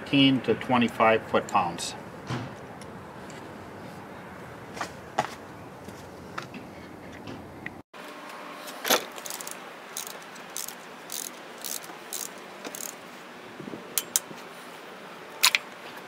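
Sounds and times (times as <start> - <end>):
torque wrench ratchet clicking: 9.2 - 13.0.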